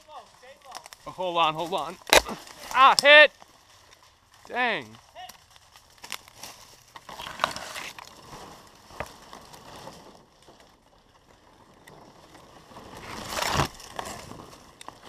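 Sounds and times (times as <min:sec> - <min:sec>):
footsteps on dry leaves: 0:00.0 - 0:15.0
palm fronds scraping camera: 0:05.8 - 0:10.2, 0:12.6 - 0:15.0.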